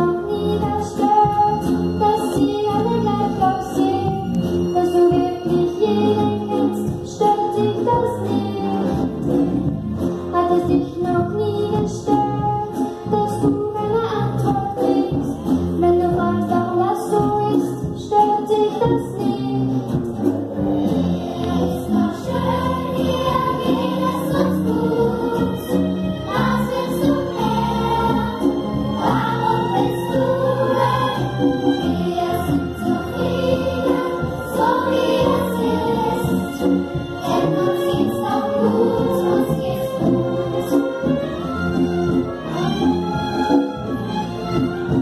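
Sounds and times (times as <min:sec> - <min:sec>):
low musical accompaniment: 0:00.0 - 0:45.0
children's choir singing: 0:20.8 - 0:41.5.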